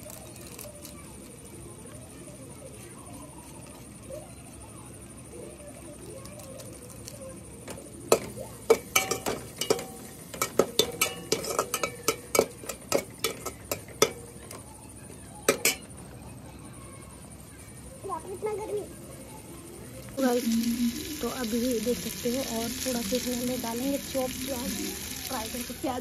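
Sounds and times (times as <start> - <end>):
metal ladle clanking in pot: 8.1 - 14.6, 15.5 - 15.9.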